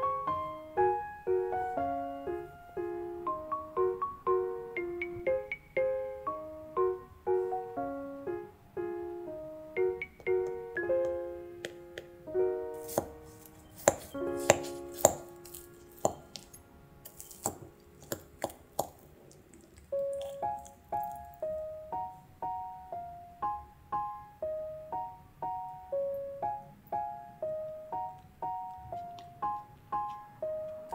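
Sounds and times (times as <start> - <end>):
gentle piano-like music: 0.0 - 30.9
spoon cracking pastry crust: 12.8 - 21.4.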